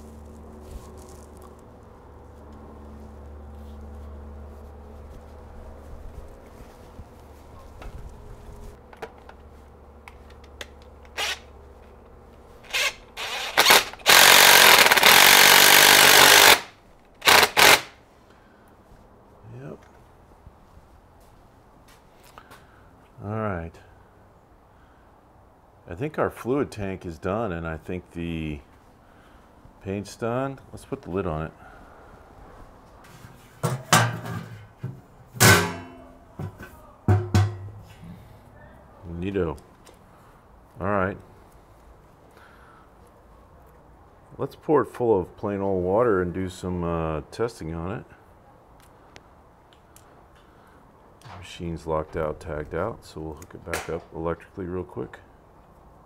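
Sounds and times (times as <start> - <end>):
impact driver running: 12.7 - 17.9
metal lid clanking: 33.6 - 37.9.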